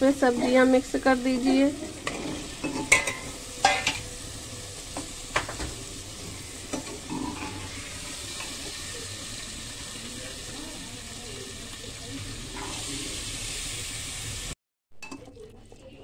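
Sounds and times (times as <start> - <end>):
food sizzling in oil: 0.0 - 16.0
ladle scraping pot: 1.4 - 4.1, 5.4 - 8.7.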